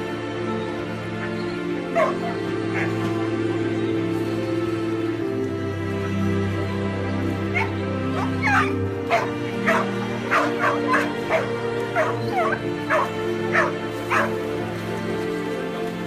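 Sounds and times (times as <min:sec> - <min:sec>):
background music: 0:00.0 - 0:16.0
dog whimpering and yelping: 0:01.9 - 0:03.0, 0:07.6 - 0:14.3.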